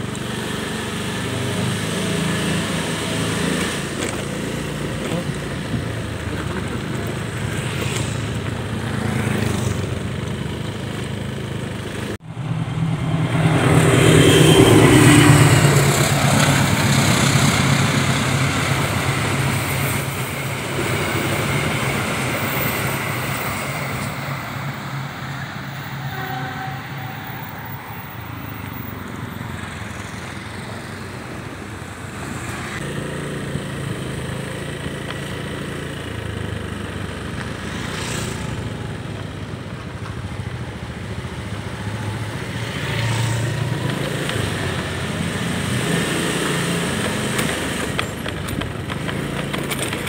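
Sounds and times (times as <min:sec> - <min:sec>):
motorcycle engine running: 0:00.0 - 0:22.5, 0:32.8 - 0:50.0.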